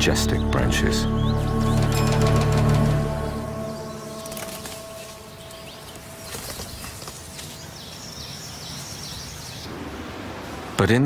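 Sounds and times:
bird singing: 0.0 - 9.7.

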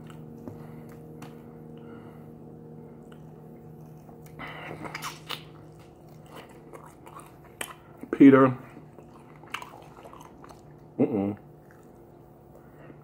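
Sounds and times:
low hum: 0.0 - 13.0
chewing crispy chicken: 3.0 - 12.6.

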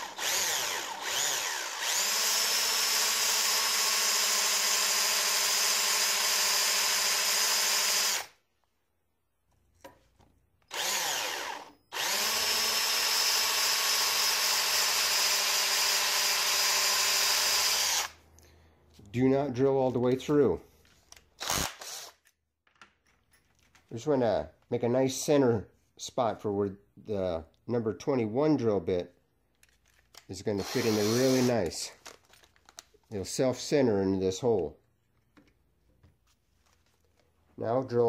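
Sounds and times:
cordless drill whining: 0.0 - 8.4, 10.7 - 18.2, 21.4 - 22.2, 30.5 - 31.9.

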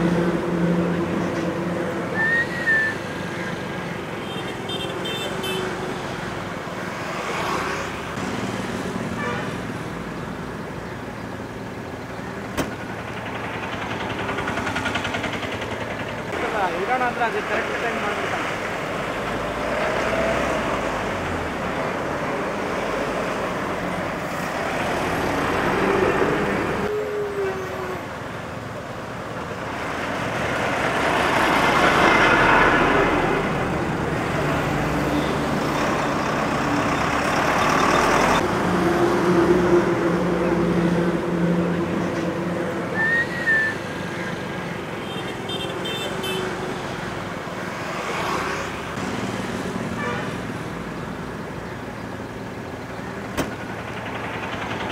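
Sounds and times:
cars and trucks passing: 0.0 - 54.9.

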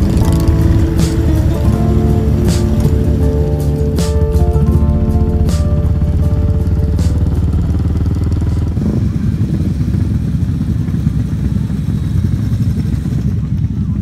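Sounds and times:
background music: 0.0 - 8.8
motorcycle engines idling: 0.0 - 14.0.

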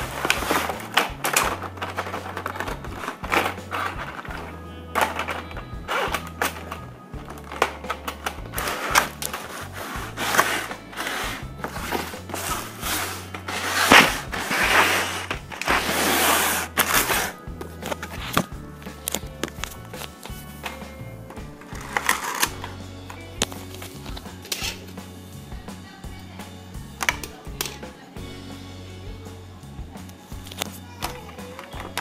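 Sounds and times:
background music with bass line: 0.0 - 32.0
cardboard box being handled: 8.6 - 18.5.

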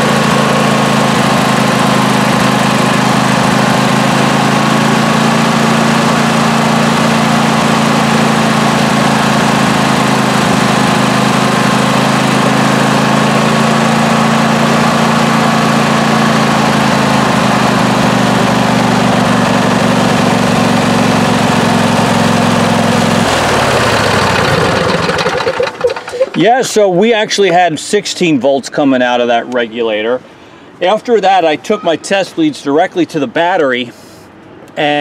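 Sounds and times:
lawn tractor engine running: 0.0 - 27.6.

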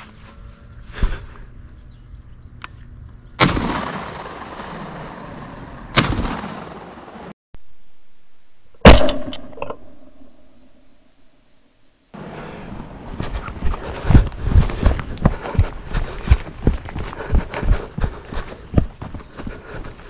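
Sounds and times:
shotgun shots echoing: 3.4 - 7.3.

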